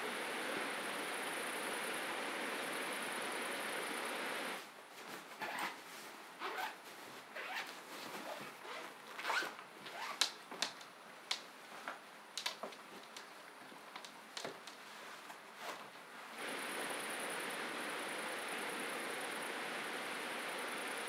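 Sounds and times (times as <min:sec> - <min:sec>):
bags rustling and crinkling: 0:04.9 - 0:10.8.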